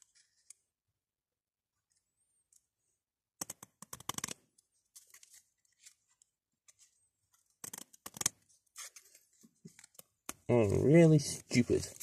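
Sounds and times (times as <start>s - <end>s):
scissors snipping card and tape: 3.4s - 4.4s, 7.6s - 9.0s.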